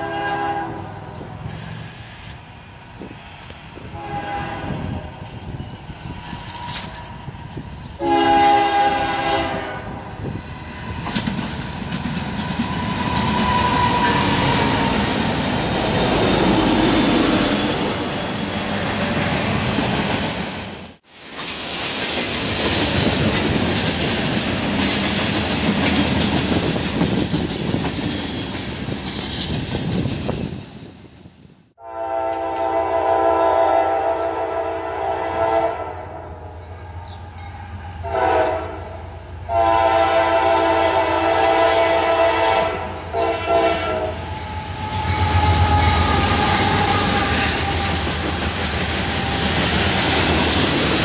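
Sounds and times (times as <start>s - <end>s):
locomotive horn blast: 0.0s - 1.0s, 3.9s - 5.3s, 8.0s - 10.1s, 31.8s - 36.5s, 38.0s - 48.1s
freight cars rolling on rails: 10.0s - 31.5s, 42.8s - 51.0s.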